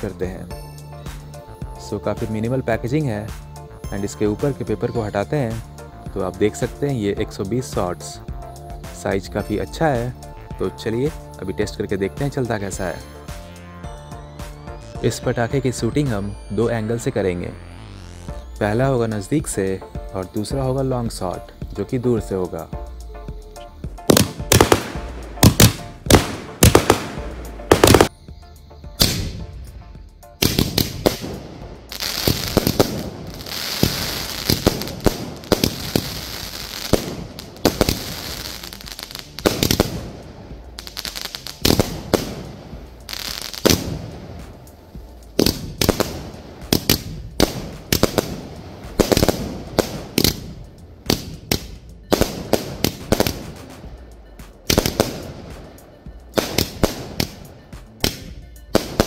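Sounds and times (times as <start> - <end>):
firework launch thumps and bursts: 23.9 - 28.1, 29.0 - 55.8, 56.4 - 59.0.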